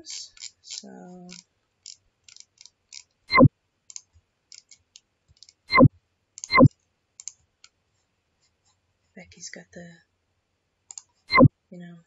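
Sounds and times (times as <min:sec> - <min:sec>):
computer mouse clicking: 0:00.2 - 0:07.8, 0:10.9 - 0:11.5.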